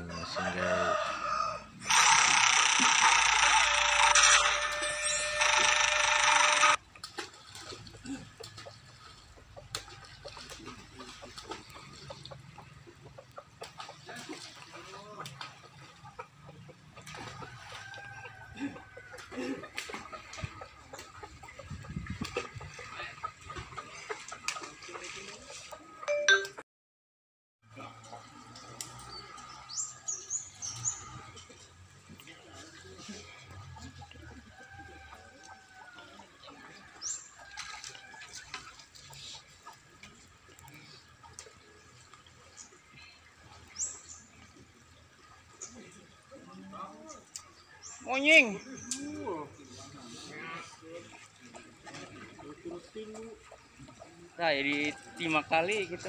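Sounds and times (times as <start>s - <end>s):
faint outdoor background: 0.0s - 17.5s
chickens clucking: 7.7s - 26.1s, 28.0s - 56.0s
short high chirps: 26.1s - 26.6s.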